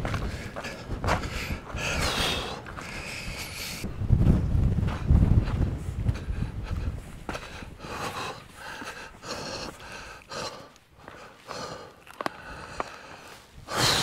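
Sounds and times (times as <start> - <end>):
person panting heavily: 0.0 - 3.9, 5.4 - 14.0.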